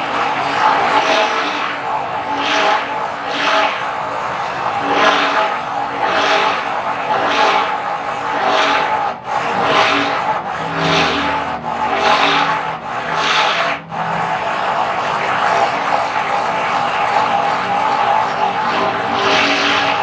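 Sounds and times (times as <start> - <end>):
blender swishing through thick mixture: 0.0 - 20.0
stick blender motor whine: 4.4 - 20.0.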